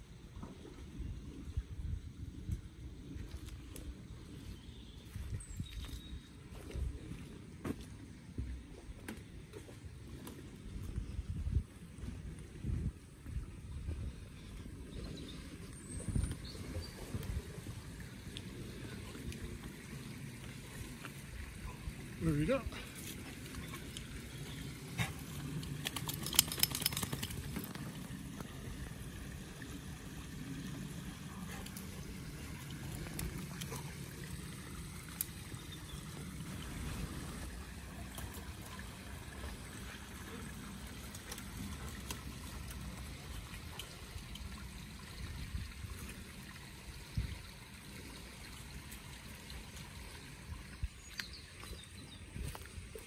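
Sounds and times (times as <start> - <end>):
creek trickling: 14.1 - 53.0
clicks and rattles: 25.6 - 27.8.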